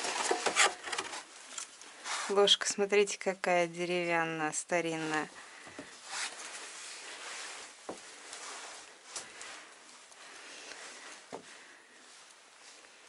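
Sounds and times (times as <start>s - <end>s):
quiet rustling: 3.9s - 13.0s.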